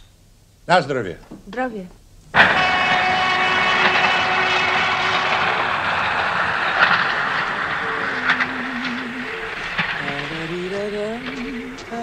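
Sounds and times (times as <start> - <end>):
thin whining tones: 2.4 - 12.0
train rumbling and rattling: 2.4 - 12.0
low wavering tone: 3.3 - 12.0.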